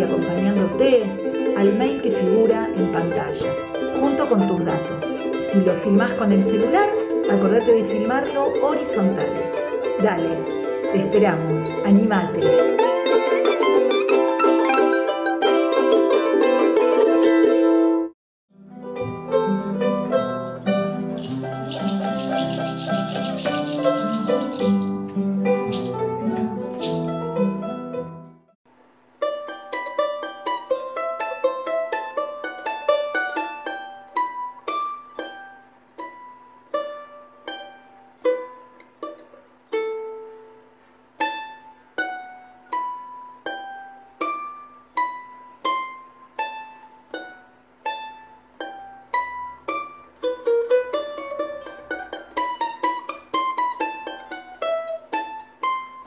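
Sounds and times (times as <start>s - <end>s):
instrumental music with bass: 0.0s - 28.6s
charango plucked melody: 0.0s - 56.0s.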